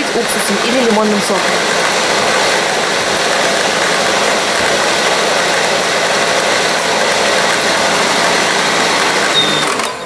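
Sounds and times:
stand mixer whirring: 0.0s - 10.0s.

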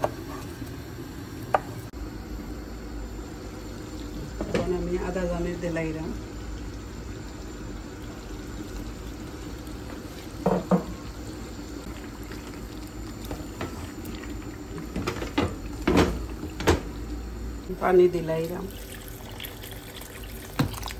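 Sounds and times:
knocks in pot: 10.4s - 11.0s.

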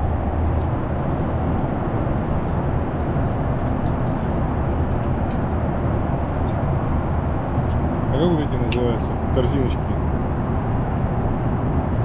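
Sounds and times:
engine and airflow rush: 0.0s - 12.0s.

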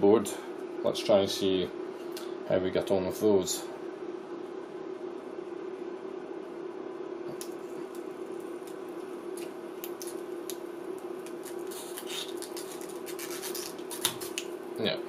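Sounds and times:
molten solder crackling: 7.3s - 14.8s.

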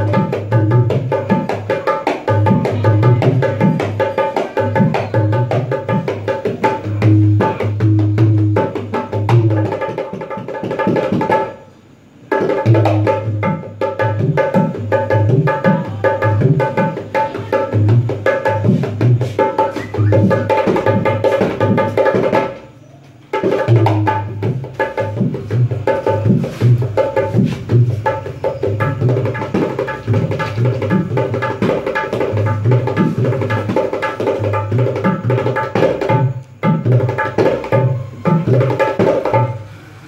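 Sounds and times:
barrel hand drum played by hand: 0.0s - 11.6s, 12.2s - 22.6s, 23.3s - 39.6s.

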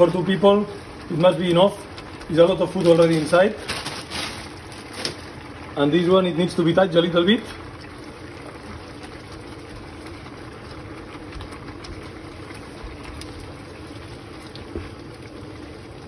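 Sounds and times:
stock bubbling in pan: 0.0s - 16.0s.

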